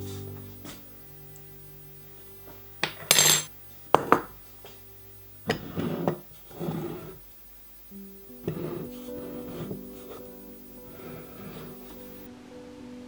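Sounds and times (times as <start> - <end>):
quiet guitar music: 0.0 - 2.9, 7.9 - 12.8
metal spoon scraping ceramic bowl: 5.5 - 7.2.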